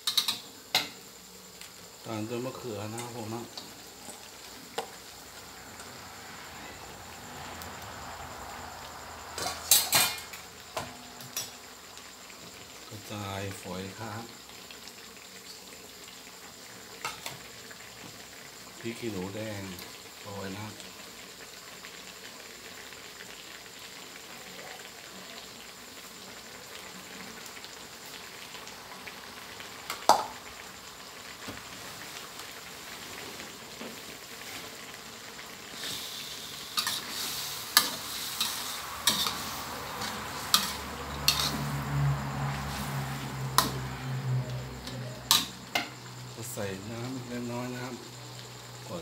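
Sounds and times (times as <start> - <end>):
food sizzling in a wok: 0.0 - 49.0
metal spatula scraping wok: 35.8 - 43.8.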